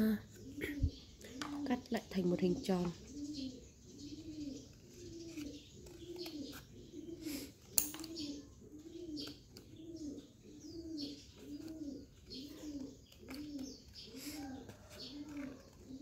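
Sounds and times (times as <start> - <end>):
dove cooing: 0.0 - 16.0.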